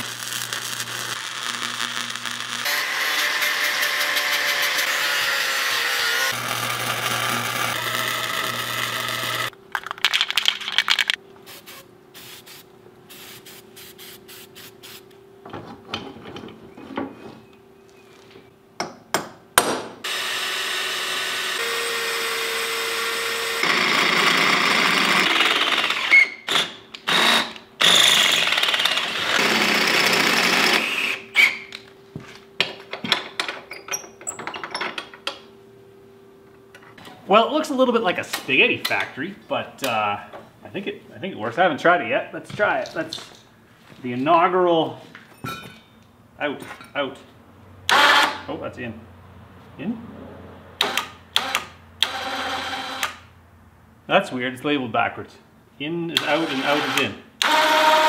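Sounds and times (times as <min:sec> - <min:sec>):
welding: 0:00.0 - 0:09.6
power drill running: 0:01.2 - 0:05.0, 0:05.7 - 0:09.5, 0:20.0 - 0:31.5, 0:47.9 - 0:48.4, 0:50.8 - 0:53.2, 0:56.2 - 0:58.0.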